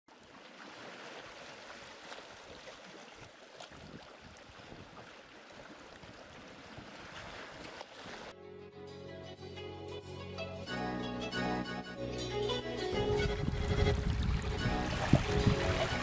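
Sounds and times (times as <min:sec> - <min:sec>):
seawater washing among rocks: 0:00.1 - 0:08.3, 0:13.5 - 0:16.0.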